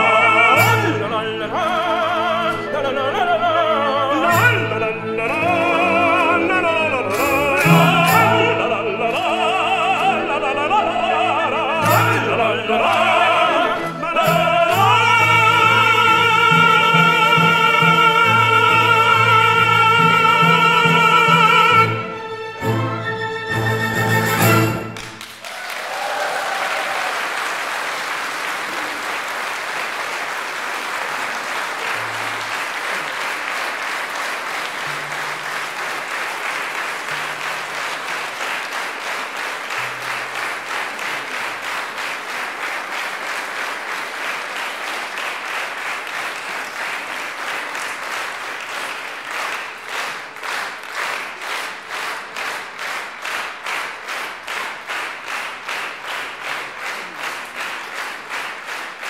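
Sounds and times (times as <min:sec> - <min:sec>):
audience applauding: 0:00.0 - 0:22.2, 0:23.6 - 0:59.0
rhythmic unison clapping: 0:00.0 - 0:23.0, 0:24.0 - 0:59.0.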